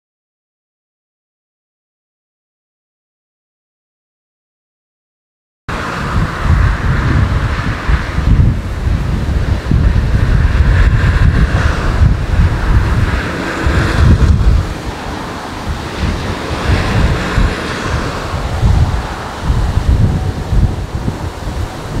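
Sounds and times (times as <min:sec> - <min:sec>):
distant jet engine hiss: 0:05.7 - 0:22.0
wind buffeting the microphone: 0:05.7 - 0:22.0.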